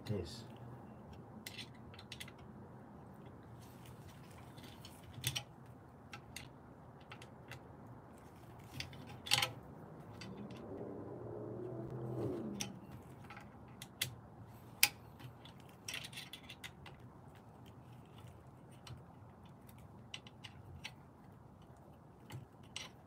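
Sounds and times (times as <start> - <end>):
small metallic clicks and taps: 6.1 - 10.7, 14.8 - 21.0, 21.6 - 23.0.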